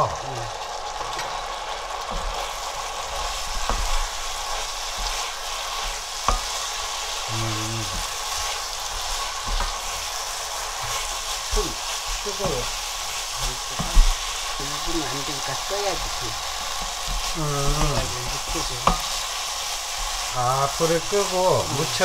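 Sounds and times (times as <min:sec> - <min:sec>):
sauce sizzling in oil: 0:00.0 - 0:22.0
spatula knocking on pan: 0:06.2 - 0:06.6, 0:13.8 - 0:14.3, 0:18.8 - 0:19.2.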